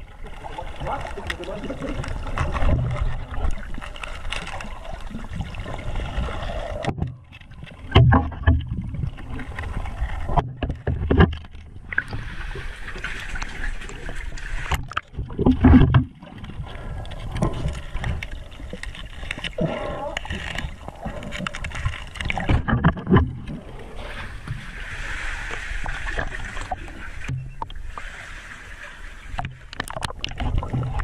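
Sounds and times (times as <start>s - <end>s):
underwater sloshing rumble: 0.0s - 31.0s.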